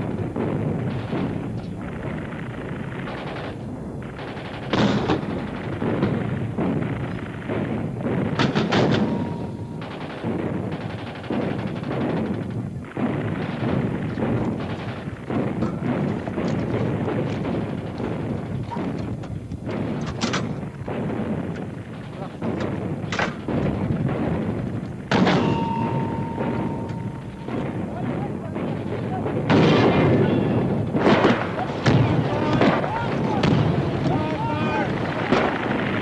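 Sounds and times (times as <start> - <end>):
explosions: 0.0 - 36.0.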